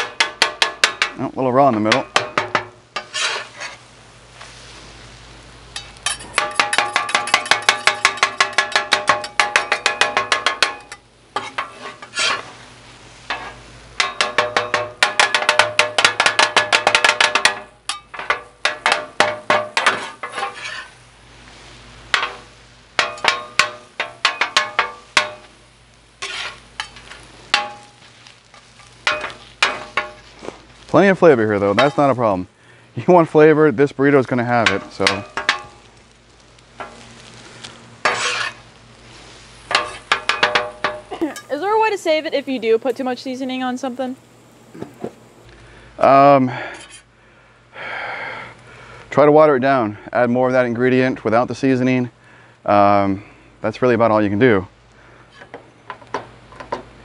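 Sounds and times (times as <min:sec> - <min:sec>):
metal blade clacking on griddle: 0:00.0 - 0:03.8, 0:05.8 - 0:12.5, 0:13.3 - 0:20.9, 0:22.1 - 0:25.5, 0:26.2 - 0:28.0, 0:28.8 - 0:30.2, 0:34.6 - 0:35.8, 0:38.0 - 0:38.6, 0:39.7 - 0:41.5.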